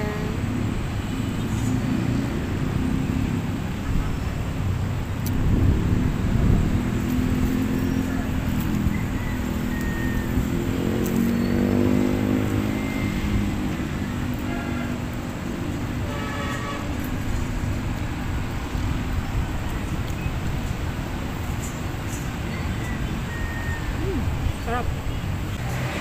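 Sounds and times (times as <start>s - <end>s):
road traffic going by: 0.0s - 26.0s
vehicle engine revving: 5.3s - 19.0s, 25.6s - 26.0s.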